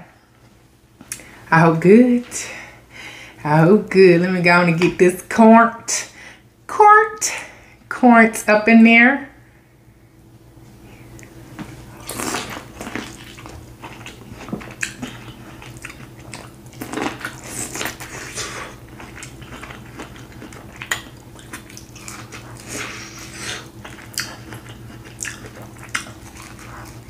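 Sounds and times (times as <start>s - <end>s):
steady low hum: 0.0s - 27.0s
chewing: 12.0s - 27.0s.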